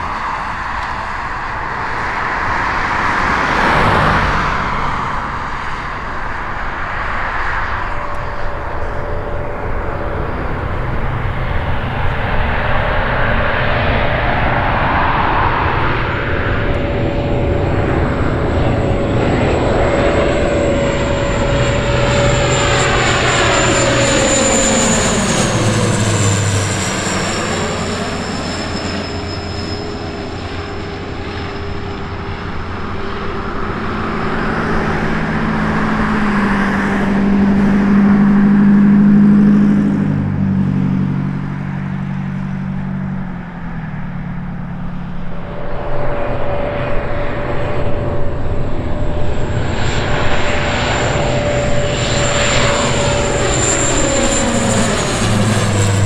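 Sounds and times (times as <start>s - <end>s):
propeller aircraft flyby: 0.0s - 56.0s.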